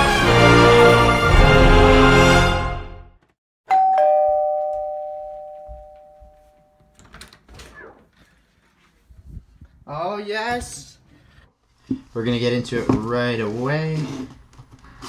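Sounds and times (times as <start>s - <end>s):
two-tone doorbell chime: 3.7s - 6.9s
doorknob turning: 6.9s - 8.0s.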